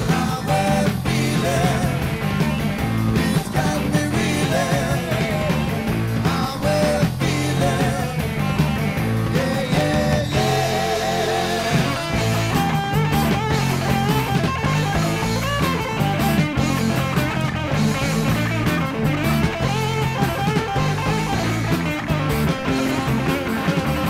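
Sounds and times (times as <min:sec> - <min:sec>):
bass: 0:00.0 - 0:24.0
drums with steady beat: 0:00.0 - 0:24.0
electric guitar: 0:00.0 - 0:24.0.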